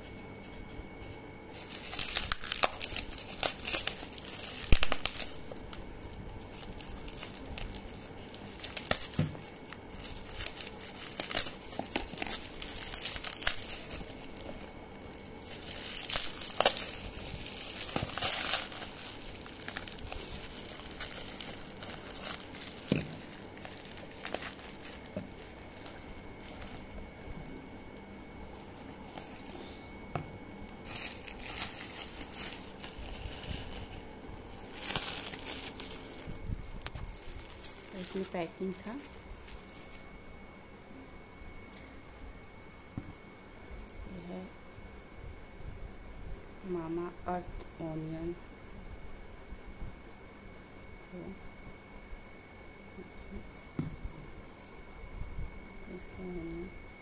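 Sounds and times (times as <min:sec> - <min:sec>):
bubble wrap crinkling: 0:01.5 - 0:40.5.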